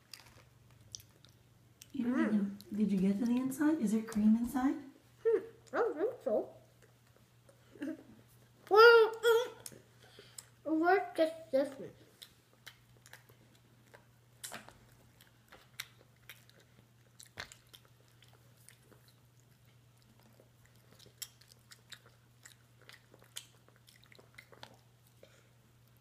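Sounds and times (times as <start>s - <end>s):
chewing pastry: 0.0s - 3.5s, 11.6s - 26.0s.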